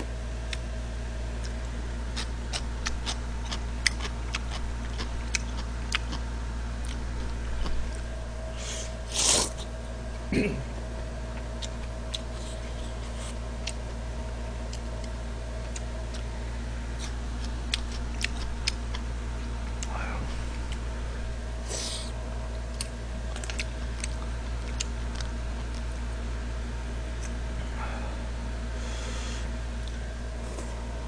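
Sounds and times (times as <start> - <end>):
steady low hum: 0.0 - 31.0
chewing and chopstick clicks: 22.7 - 25.9.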